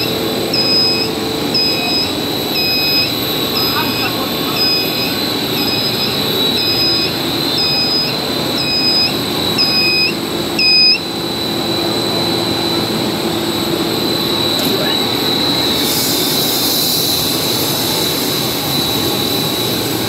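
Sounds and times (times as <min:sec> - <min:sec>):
electronic warning beeps: 0:00.0 - 0:12.9
machinery humming and whining: 0:00.0 - 0:20.0.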